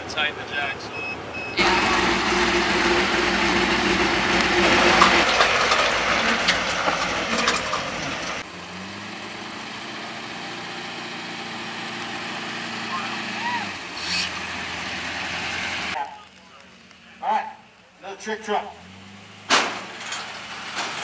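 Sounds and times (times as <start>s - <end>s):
truck engine idling: 0.8s - 21.0s
truck engine running: 1.0s - 21.0s
tyres crunching on gravel: 1.6s - 8.5s, 15.9s - 17.9s.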